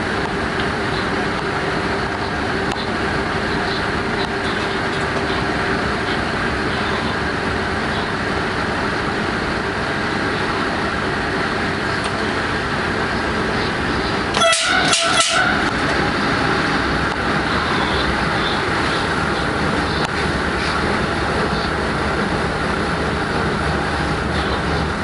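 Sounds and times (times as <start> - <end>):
train rumbling on rails: 0.0 - 25.0
short pitched sound: 14.3 - 15.9.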